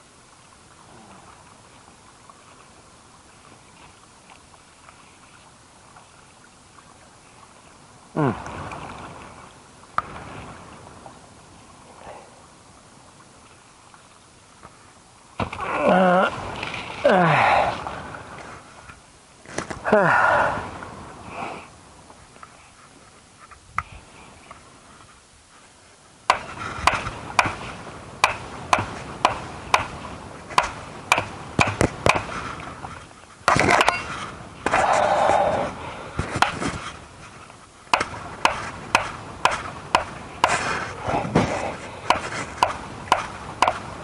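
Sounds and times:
stake being hammered into ground: 0:26.3 - 0:27.6, 0:28.2 - 0:32.3, 0:33.5 - 0:34.0, 0:36.3 - 0:36.6, 0:37.9 - 0:40.6, 0:42.1 - 0:43.9.

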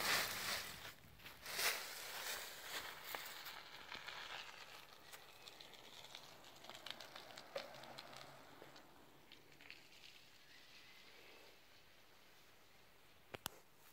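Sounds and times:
dry leaves rustling and crackling: 0:00.0 - 0:11.0.

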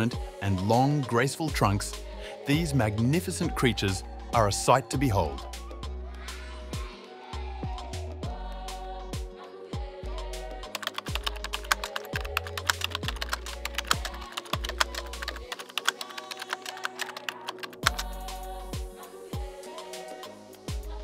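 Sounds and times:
background music with bass: 0:00.0 - 0:15.5, 0:17.8 - 0:21.0
rapid keyboard typing: 0:10.7 - 0:18.2.

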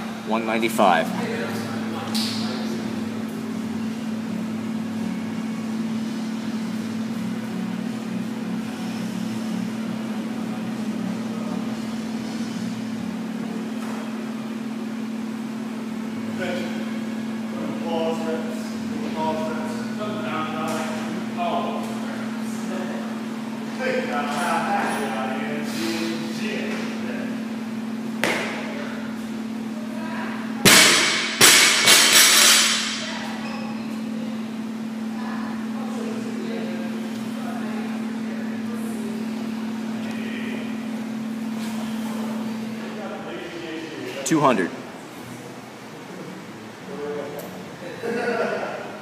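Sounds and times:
low machine hum: 0:00.0 - 0:49.0
barbell crashing onto rubber floor: 0:30.6 - 0:33.1.

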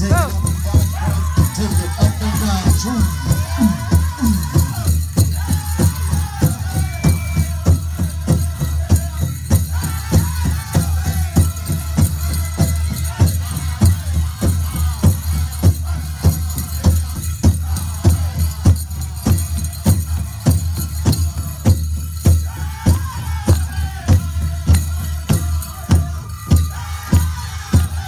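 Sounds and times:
high-pitched singing: 0:00.0 - 0:13.6
jingling bells: 0:00.0 - 0:28.0
large drum steady beat: 0:00.0 - 0:28.0.

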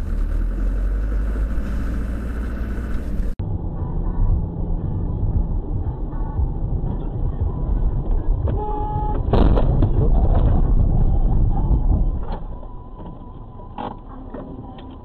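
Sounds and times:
car road and engine rumble: 0:00.0 - 0:15.0
car horn: 0:08.4 - 0:09.4.

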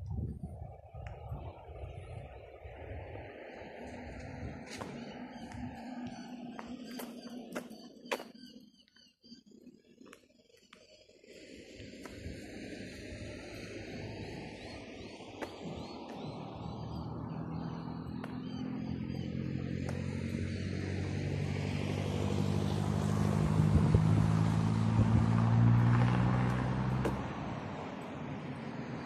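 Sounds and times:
vehicle driving past: 0:12.4 - 0:29.0.

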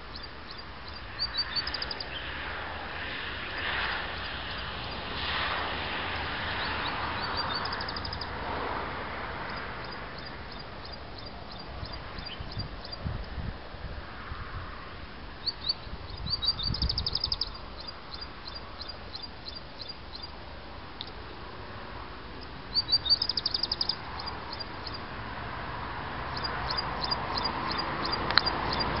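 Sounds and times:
songbird trilling: 0:00.0 - 0:02.3, 0:06.6 - 0:08.3, 0:09.8 - 0:13.0, 0:15.4 - 0:20.3, 0:22.4 - 0:25.0, 0:26.3 - 0:29.0.

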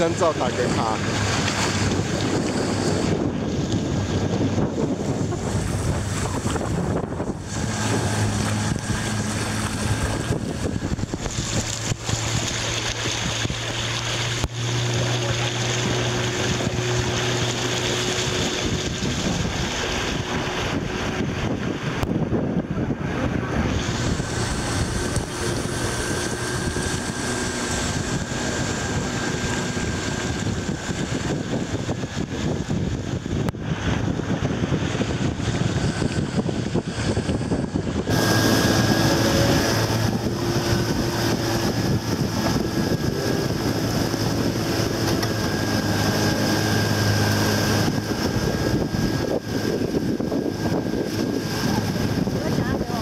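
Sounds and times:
rushing river water: 0:00.0 - 0:53.0
wind buffeting microphone: 0:00.0 - 0:53.0.

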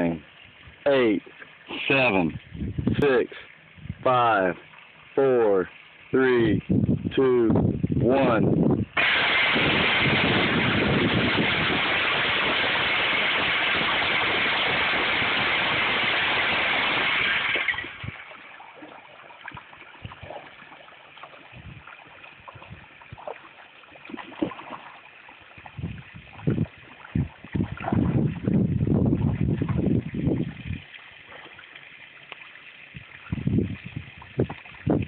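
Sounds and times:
fish feeder rushing: 0:09.0 - 0:19.4.

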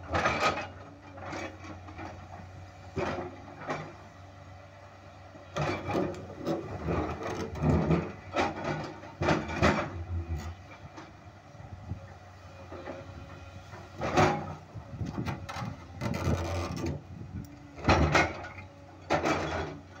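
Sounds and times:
excavator diesel engine running: 0:00.0 - 0:20.0
bucket scraping against boulders: 0:15.2 - 0:17.0.

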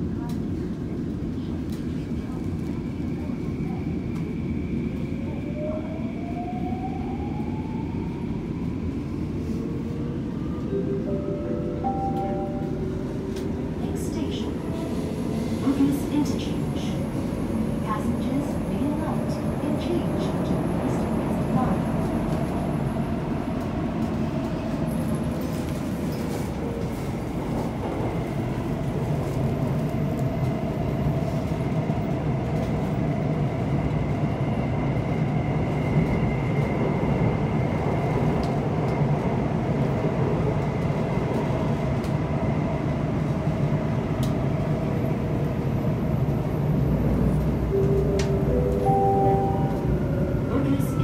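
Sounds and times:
train wheels rumbling on rail: 0:12.1 - 0:51.0.

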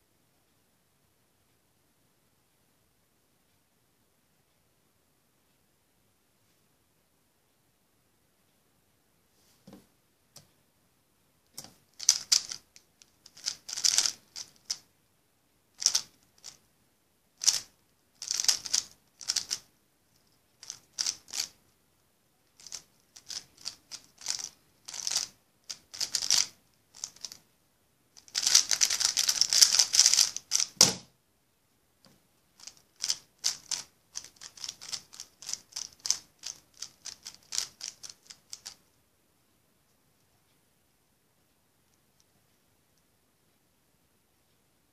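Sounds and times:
puzzle cube plastic clacks: 0:11.6 - 0:14.8, 0:15.8 - 0:16.6, 0:17.4 - 0:19.7, 0:20.6 - 0:21.6, 0:22.6 - 0:27.4, 0:28.2 - 0:31.0, 0:32.6 - 0:38.8.

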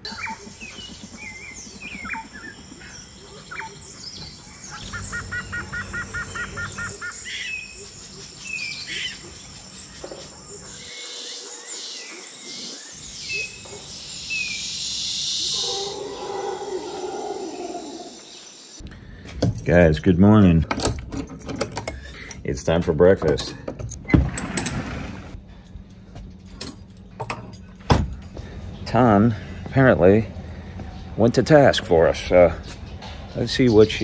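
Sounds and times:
lower bird call: 0:00.0 - 0:09.4, 0:14.3 - 0:18.7
birds chirping and whistling: 0:00.0 - 0:18.8.

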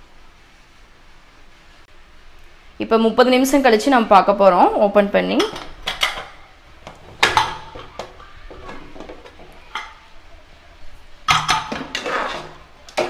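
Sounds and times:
ladle clattering against pot: 0:07.1 - 0:10.0, 0:11.3 - 0:13.0.

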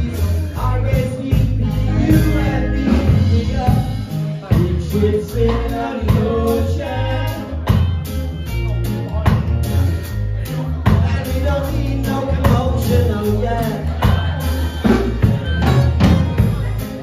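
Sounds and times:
person singing: 0:00.0 - 0:08.1, 0:10.4 - 0:17.0
acoustic guitar: 0:00.0 - 0:17.0
drum kit: 0:00.0 - 0:17.0.

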